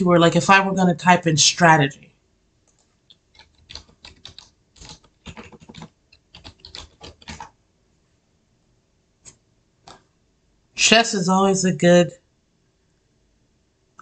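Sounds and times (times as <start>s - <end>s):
typing on computer keyboard: 2.7s - 7.5s.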